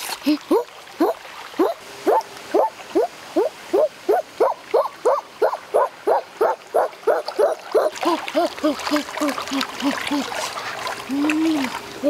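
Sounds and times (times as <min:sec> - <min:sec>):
boy making hoo calls: 0:07.8 - 0:10.5, 0:11.1 - 0:11.8.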